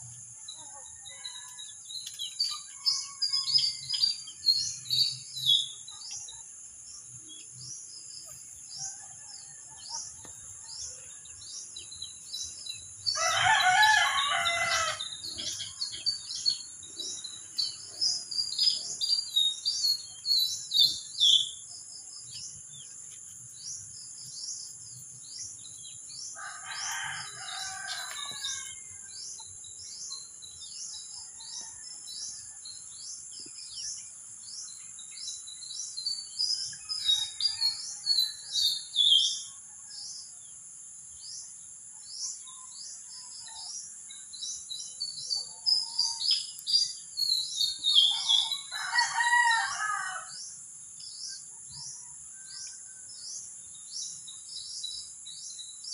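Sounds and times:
small birds chirping: 0.0 - 40.4, 41.1 - 55.9
insects droning: 0.0 - 55.9
rooster crowing: 13.1 - 15.2, 26.4 - 29.0, 48.4 - 50.3.

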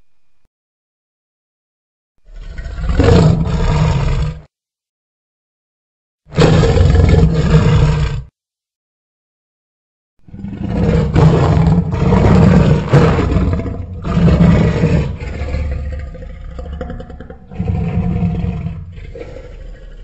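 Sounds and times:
dinosaur roaring and growling: 2.2 - 4.5, 6.3 - 8.3, 10.3 - 20.0.

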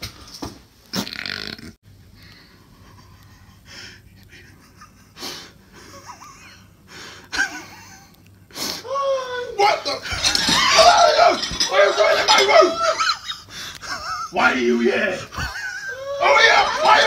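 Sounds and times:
person breathing heavily: 2.2 - 4.4, 6.9 - 7.3.

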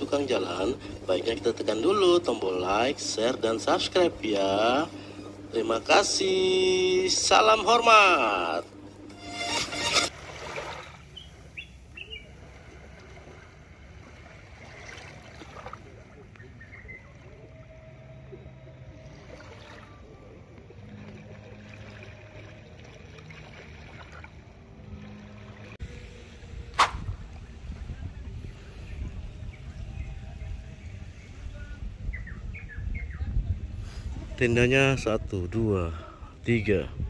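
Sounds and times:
low steady hum: 0.0 - 37.0
small waves lapping on sand: 10.0 - 17.5, 18.9 - 26.0
faint bird chirps: 11.2 - 12.4, 16.2 - 19.1, 28.9 - 33.5.

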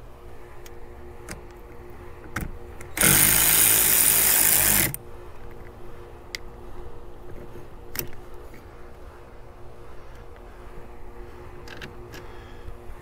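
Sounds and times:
power tool running: 3.0 - 5.0.

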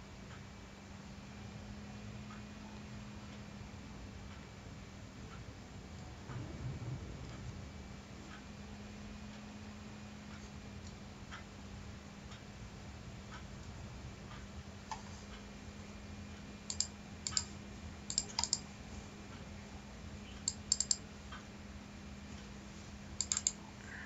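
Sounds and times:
steady low hum: 0.0 - 24.0
computer mouse clicking: 16.7 - 17.5, 18.1 - 18.6, 20.4 - 21.0, 23.2 - 23.6.

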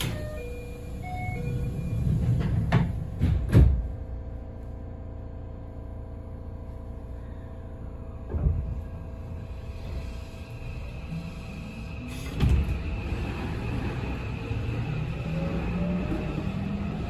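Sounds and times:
sliding doors closing with thuds: 1.4 - 4.0, 12.0 - 14.8.

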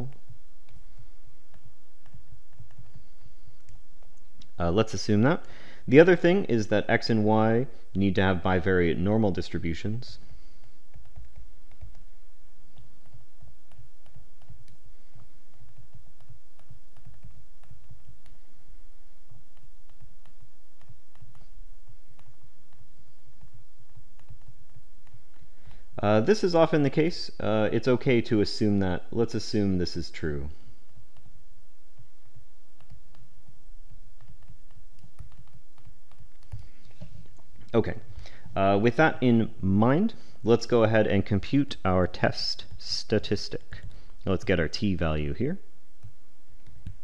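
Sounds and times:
steady low hum: 0.0 - 47.0
stylus tapping on tablet screen: 0.1 - 4.6, 10.2 - 26.0, 30.6 - 37.7, 46.0 - 47.0.

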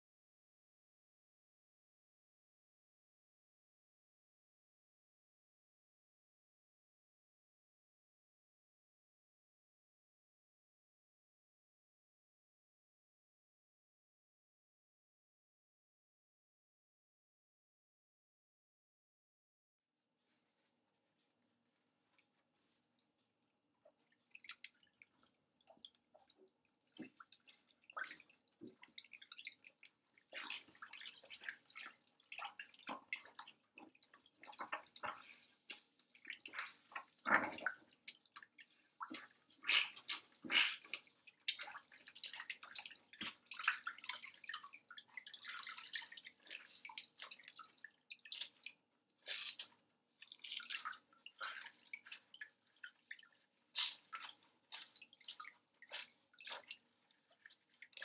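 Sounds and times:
water sloshing in a sink: 21.9 - 58.0
water dripping: 23.8 - 58.0
gloves rubbed and squeezed: 38.9 - 42.2.

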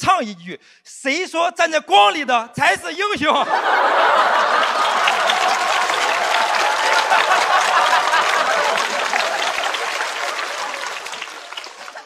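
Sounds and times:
audience laughing: 3.4 - 12.0
audience clapping: 3.6 - 12.0.

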